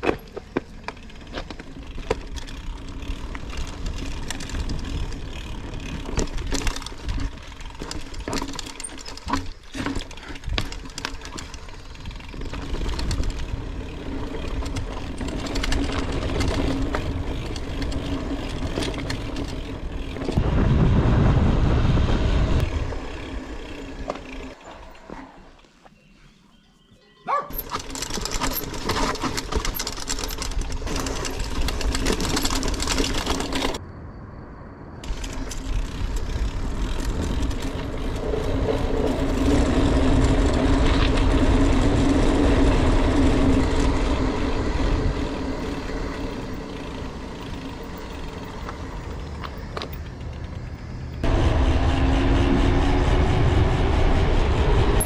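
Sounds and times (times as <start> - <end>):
bike rattling and knocking: 0.0 - 20.6, 22.2 - 25.2, 27.3 - 33.8, 35.0 - 51.4
tyre noise on dirt: 0.0 - 33.8, 35.0 - 51.3
wind on microphone: 20.3 - 23.0.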